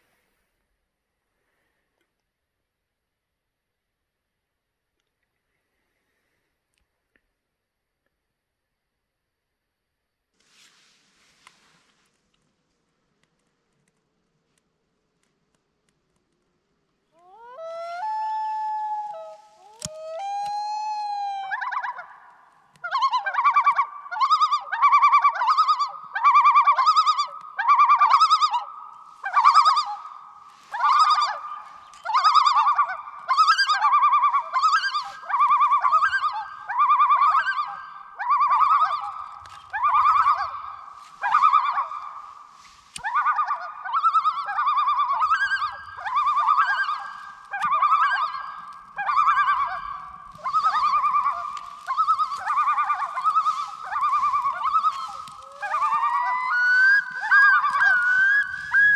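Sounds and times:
birds calling: 21.5s - 58.9s.

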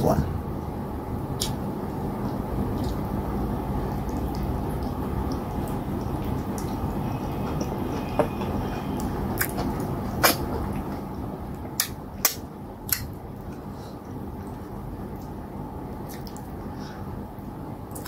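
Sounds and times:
steady low hum: 0.0s - 18.0s
wet eating sounds: 1.4s - 17.0s
sharp wet clicks: 3.8s - 6.8s, 11.8s - 13.6s.

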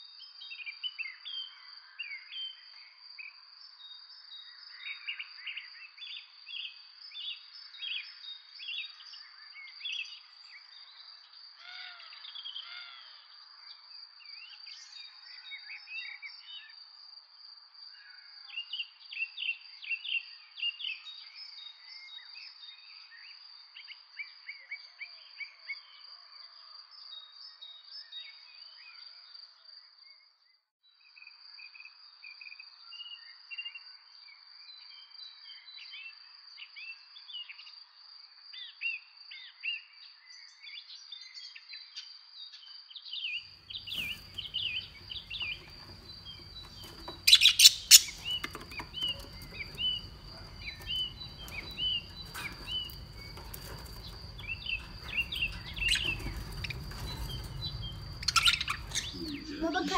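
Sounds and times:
birds chirping: 43.6s - 59.9s
budgerigars chattering: 43.8s - 59.9s.

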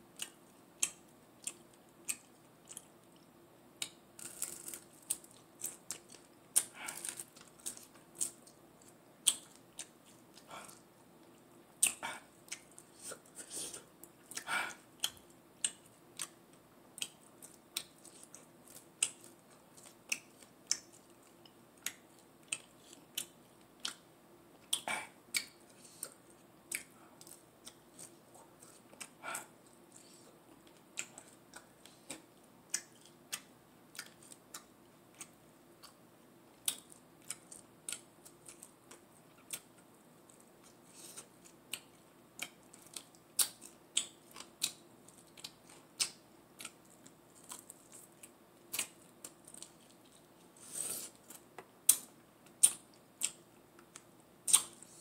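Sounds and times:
wet chewing and mouth smacks: 0.2s - 13.2s.

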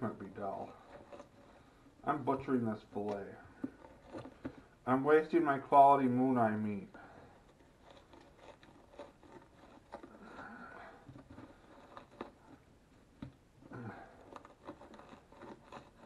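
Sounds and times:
knife scraping through fish scales: 14.0s - 16.0s.

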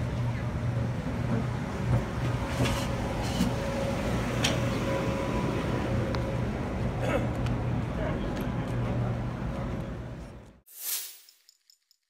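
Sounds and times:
electric train humming: 0.0s - 7.0s.

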